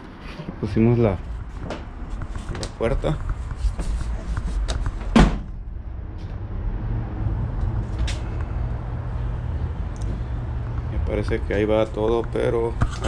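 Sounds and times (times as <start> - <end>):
steady low rumble: 0.6 - 12.8
truck door shutting thud: 5.0 - 5.6.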